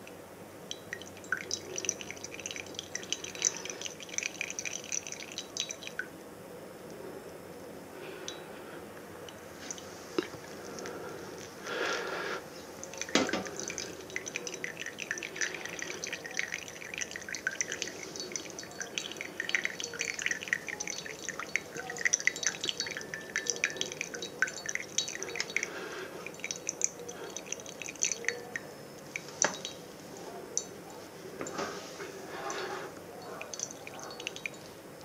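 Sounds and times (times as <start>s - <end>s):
coffee dripping into a mug: 0.0s - 6.1s, 9.2s - 30.8s, 31.4s - 34.7s.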